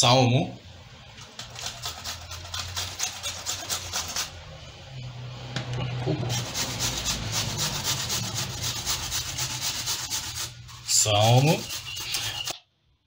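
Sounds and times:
garlic rasping on metal grater: 0:01.3 - 0:04.4, 0:06.3 - 0:12.5.

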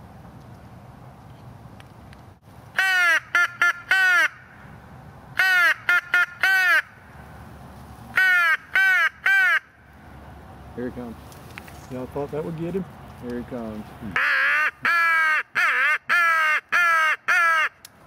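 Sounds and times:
crow call harsh caws: 0:14.2 - 0:17.8.

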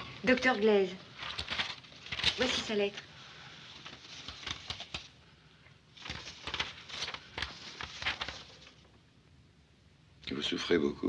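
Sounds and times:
paper rustling and crackling: 0:01.1 - 0:05.3, 0:05.9 - 0:09.0.

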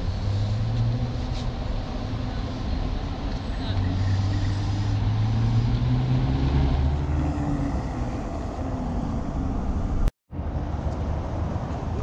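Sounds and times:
road noise: 0:00.0 - 0:12.0
vehicle engine drone: 0:00.0 - 0:12.0.

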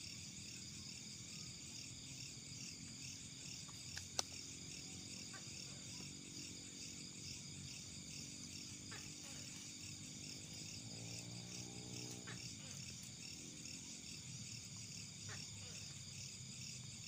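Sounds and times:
night insects chorus: 0:00.0 - 0:17.0
faint clicks: 0:03.7 - 0:04.4.

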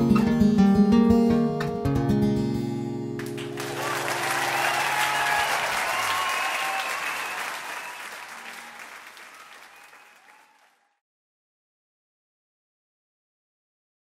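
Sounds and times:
audience applauding and cheering: 0:03.2 - 0:11.0.

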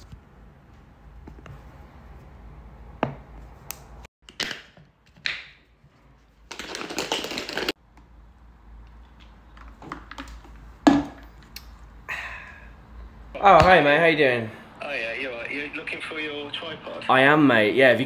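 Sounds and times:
ice rattling in shaken bottle: 0:06.5 - 0:07.7.

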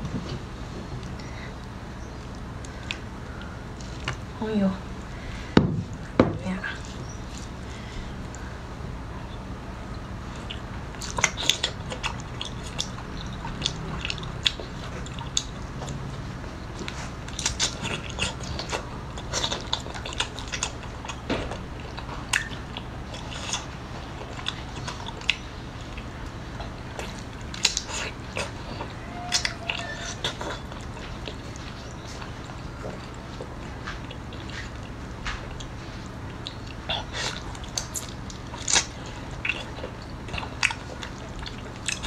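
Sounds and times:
close chewing with wet mouth clicks: 0:10.3 - 0:16.0, 0:16.7 - 0:42.0.

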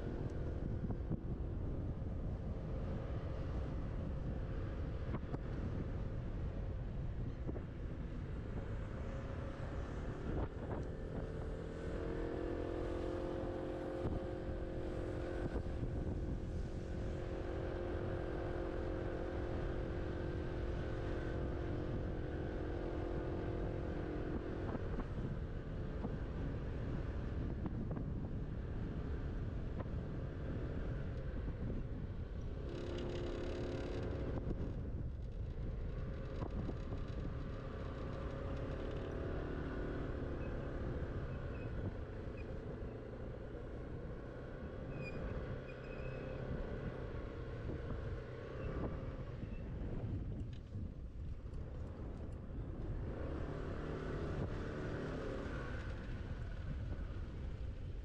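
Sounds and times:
scooter drive whine: 0:00.0 - 0:58.0
wind and road noise: 0:00.0 - 0:58.0.

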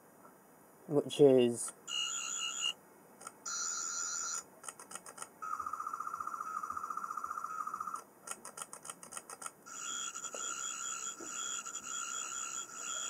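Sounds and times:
toy electronic warbling buzz: 0:01.9 - 0:02.8, 0:03.5 - 0:04.4, 0:09.7 - 0:13.0.

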